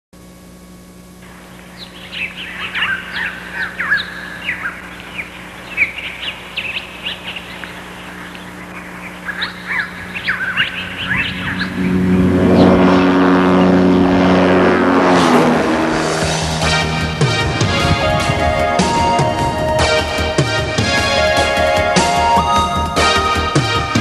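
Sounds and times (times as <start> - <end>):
steady low hum: 0.2 - 24.0
small birds chirping: 1.2 - 12.8.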